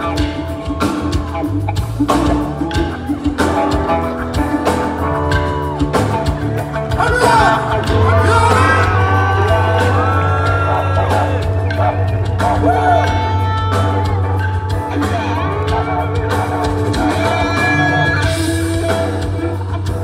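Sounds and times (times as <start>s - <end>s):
live band music: 0.0s - 20.0s
crowd whoops and shouts: 5.0s - 6.5s, 7.2s - 11.6s
person singing: 6.9s - 20.0s.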